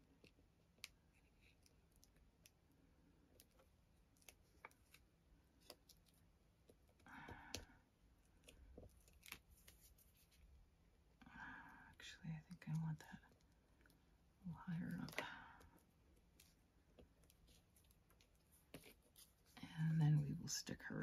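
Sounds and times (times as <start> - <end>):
soft paper rustle: 8.3 - 10.6, 14.6 - 20.8.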